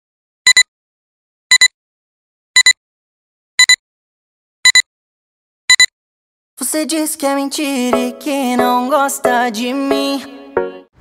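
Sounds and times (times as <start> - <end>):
high-pitched double beeps: 5.7 - 5.9.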